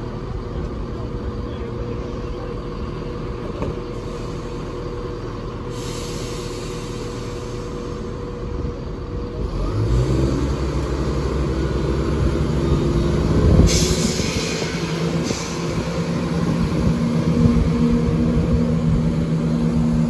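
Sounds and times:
diesel train engine: 0.0 - 20.0
hiss: 5.7 - 8.1, 13.7 - 16.1.

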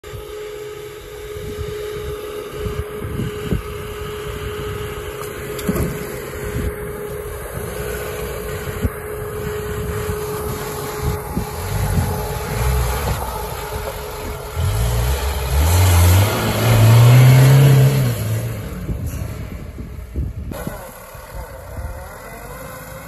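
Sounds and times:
car engine running: 0.0 - 23.0
engine whine: 0.0 - 23.0.

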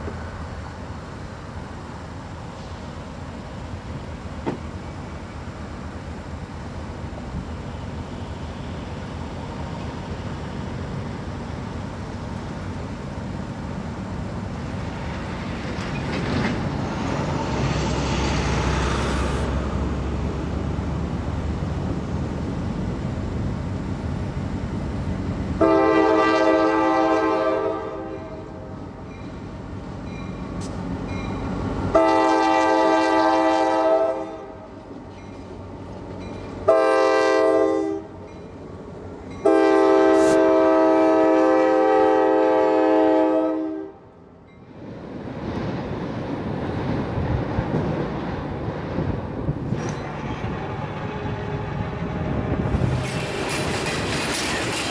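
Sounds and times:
locomotive air horn blasts: 25.6 - 28.7, 31.9 - 34.7, 36.7 - 38.1, 39.4 - 44.1.

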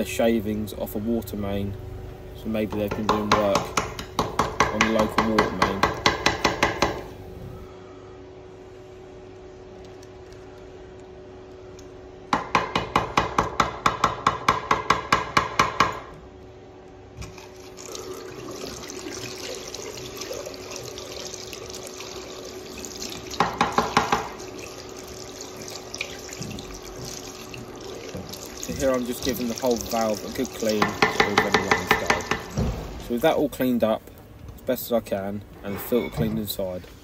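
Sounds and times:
tap water running and splashing: 17.2 - 32.9.

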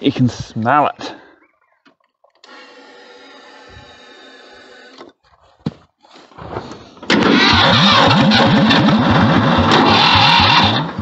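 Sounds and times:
tractor engine cranking: 2.3 - 5.2, 6.8 - 11.0.

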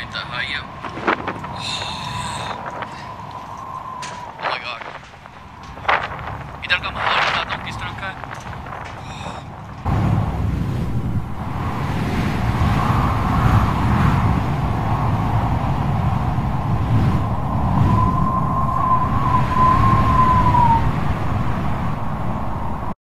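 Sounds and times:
wind buffeting microphone: 0.0 - 23.0
thin wavering whistle: 17.9 - 20.9.

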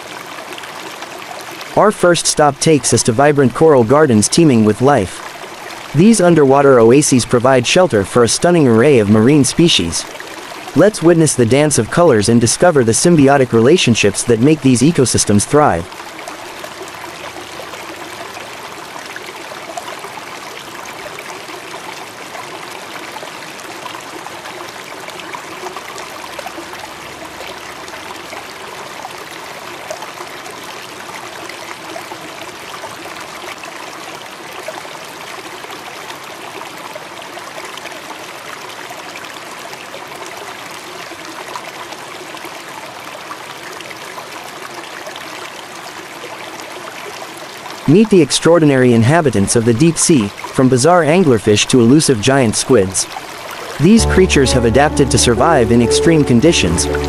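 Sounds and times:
running water: 0.0 - 34.8.

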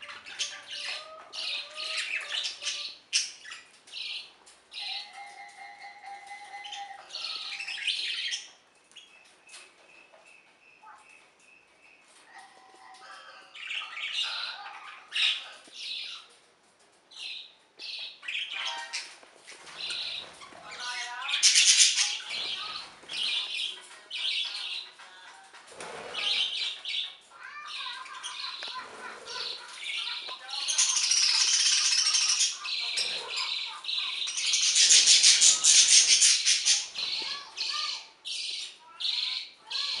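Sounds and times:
budgerigar squawking and chirping: 30.6 - 37.8.

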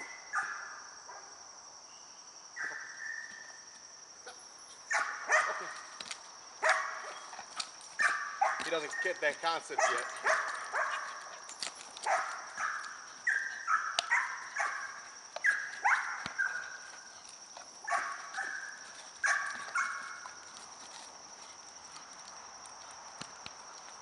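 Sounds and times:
dog barking: 4.9 - 5.8, 6.6 - 7.3, 8.0 - 11.2, 12.0 - 16.7, 17.8 - 20.1.

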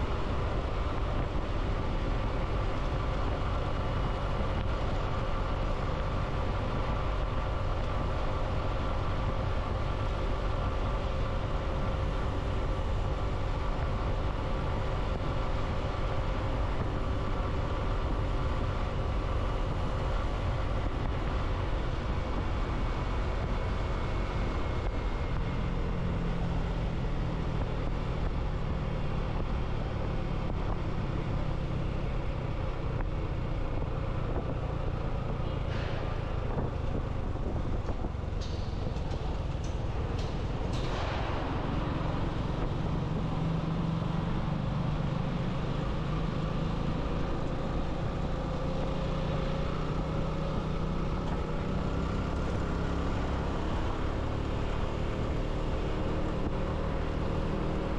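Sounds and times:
vehicle engine hum: 0.0 - 57.9
wind and road rumble: 0.0 - 57.9.

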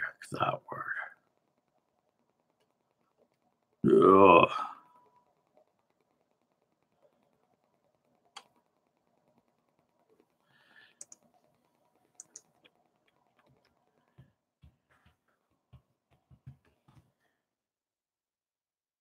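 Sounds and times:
typing on a computer keyboard: 5.8 - 14.8.

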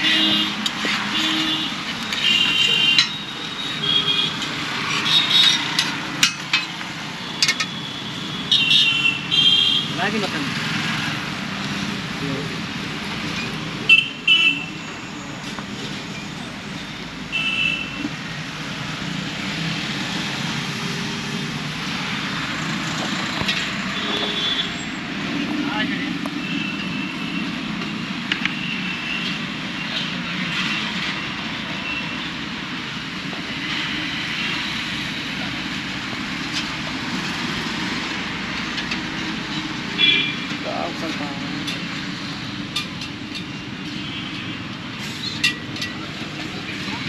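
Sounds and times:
vehicle horn toots: 0.0 - 3.2, 24.0 - 24.8, 40.0 - 40.4
street traffic: 0.0 - 47.0
steel utensils clicking: 5.5 - 7.8.

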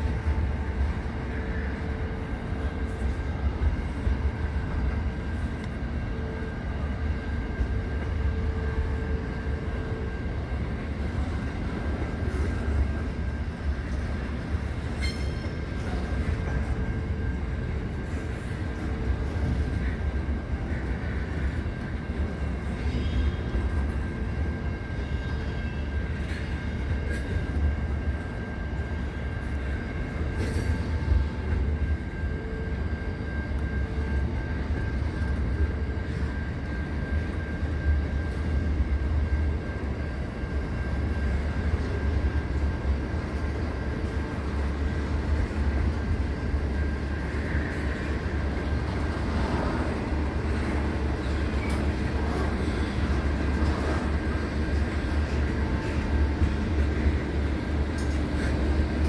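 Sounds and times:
freight train rolling rumble: 0.0 - 59.0
train wagons clanking: 11.0 - 20.0, 43.3 - 59.0.

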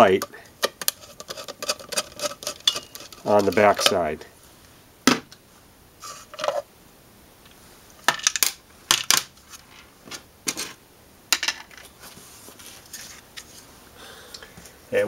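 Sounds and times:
plastic parts clicking and knocking: 0.1 - 4.0, 8.0 - 9.3.

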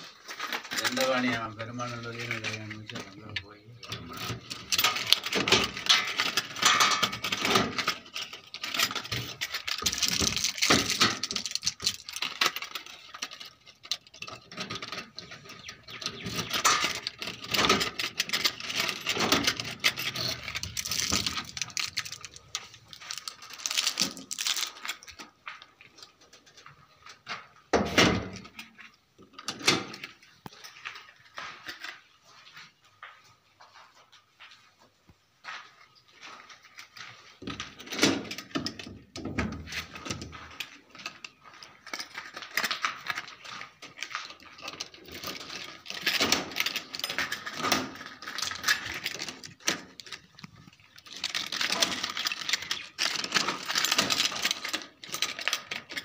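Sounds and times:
metallic lock clicks and rattles: 2.2 - 25.3, 25.9 - 31.0, 36.7 - 56.0
plastic film crinkling: 7.9 - 14.3, 19.6 - 25.7.

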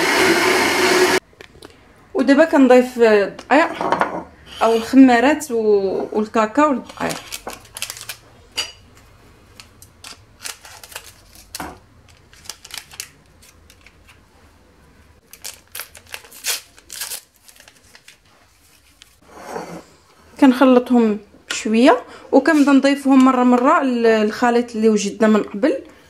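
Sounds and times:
paper sachets crinkling: 6.8 - 8.3, 9.6 - 14.2, 15.2 - 19.0.

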